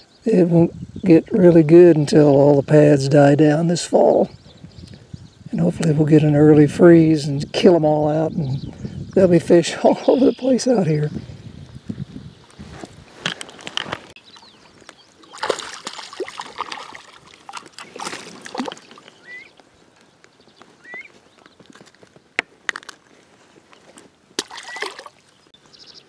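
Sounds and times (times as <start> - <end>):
fish splashing in water: 15.2 - 19.4, 24.4 - 25.4.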